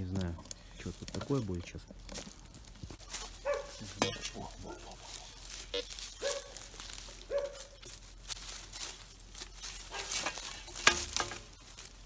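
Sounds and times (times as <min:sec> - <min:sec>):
dry leaves and twigs rustling: 0:00.0 - 0:12.0
twig snapping: 0:07.8 - 0:12.0.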